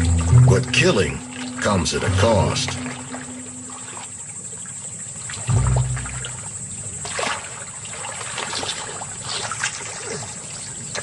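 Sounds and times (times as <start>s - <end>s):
short low hum: 0.0s - 4.1s, 5.5s - 6.9s
water splashing and trickling: 0.0s - 11.0s.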